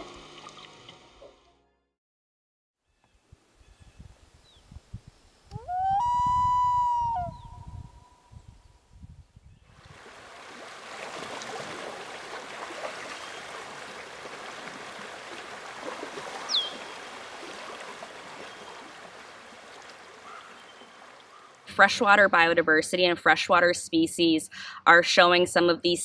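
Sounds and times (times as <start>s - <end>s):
high falling whistle: 5.5s - 8.2s
water trickling: 9.8s - 21.8s.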